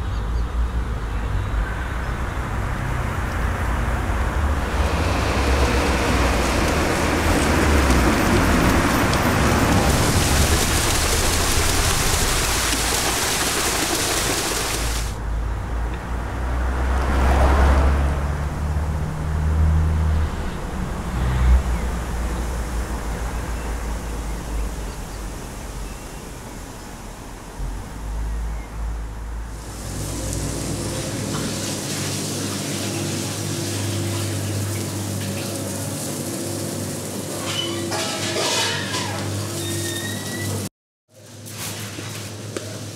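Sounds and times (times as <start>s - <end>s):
electric train passing: 2.7s - 14.7s, 29.5s - 37.6s
running water: 4.1s - 15.3s, 29.5s - 40.6s
machine hum: 4.2s - 13.2s, 29.5s - 37.4s.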